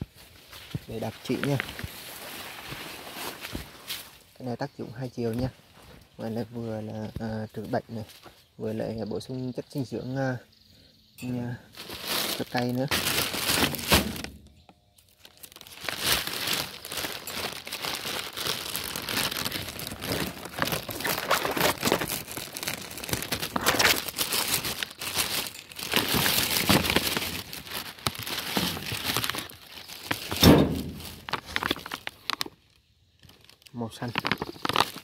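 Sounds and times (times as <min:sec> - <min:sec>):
plastic bags crinkling: 0:11.3 - 0:14.5, 0:15.1 - 0:35.0
loud thump: 0:30.4 - 0:31.0.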